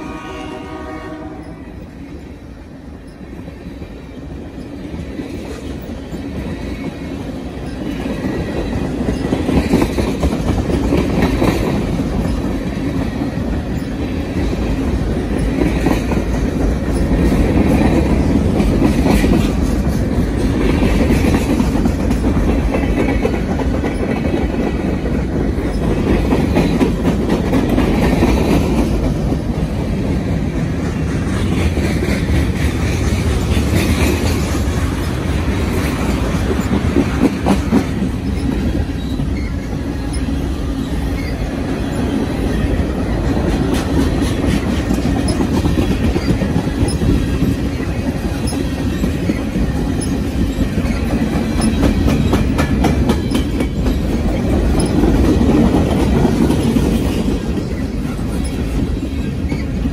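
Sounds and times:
train horn: 0:00.0 - 0:01.8
train wheels rumbling on rails: 0:00.0 - 0:59.9
wheels clacking over rail joints: 0:02.9 - 0:59.9.

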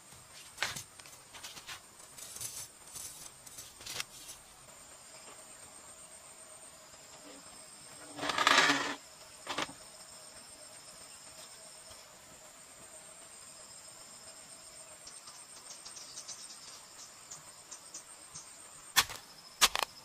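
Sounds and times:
forest insects chirring: 0:00.0 - 0:20.0
bladed tool scraping dirt: 0:08.2 - 0:09.7.

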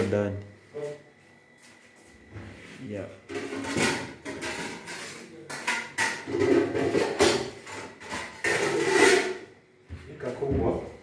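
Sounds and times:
cookware clattering in cabinet: 0:03.3 - 0:09.4.

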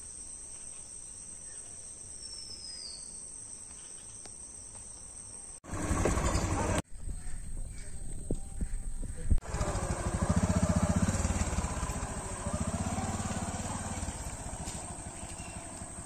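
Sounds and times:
motorcycle engine running: 0:05.6 - 0:06.8, 0:08.6 - 0:16.0.

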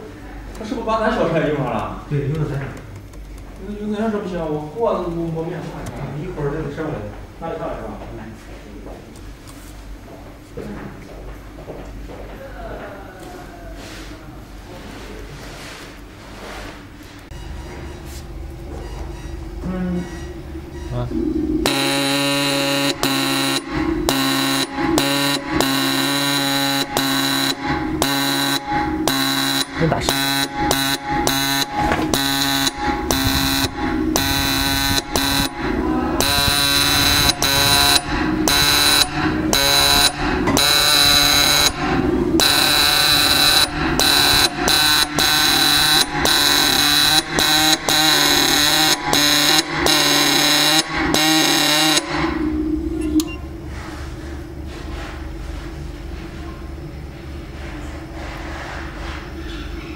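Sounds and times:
marking machine hammering metal: 0:21.6 - 0:52.4.

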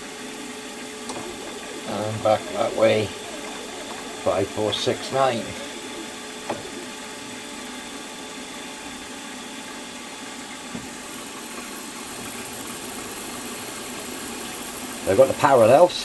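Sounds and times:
milling machine whine: 0:00.0 - 0:16.0.

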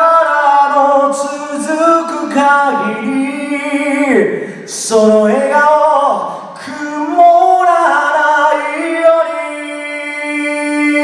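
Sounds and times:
man singing unaccompanied: 0:00.0 - 0:11.0.

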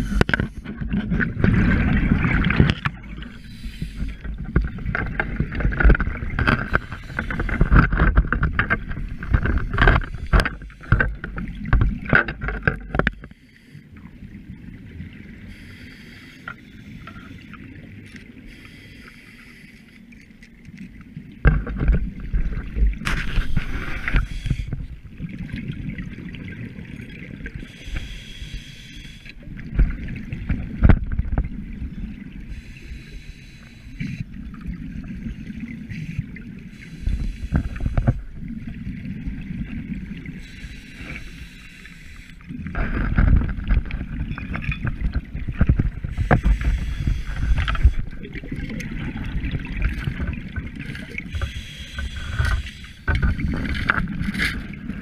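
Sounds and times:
scuba exhaust bubbles hissing: 0:01.5 - 0:04.5, 0:23.2 - 0:25.0, 0:27.4 - 0:30.1, 0:32.3 - 0:42.8, 0:46.0 - 0:53.6.

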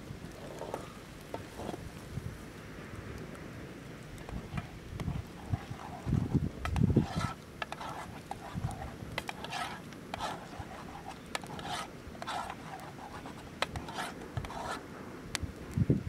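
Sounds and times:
campfire crackling and popping: 0:00.0 - 0:15.8
sticks rustling: 0:04.1 - 0:14.8.

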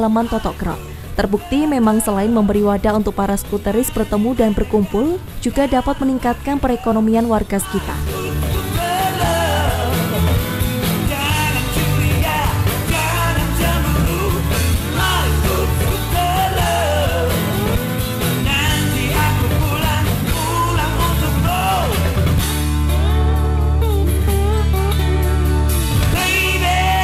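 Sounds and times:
song with singing voice: 0:00.0 - 0:27.0
low instrumental notes: 0:08.2 - 0:26.9.

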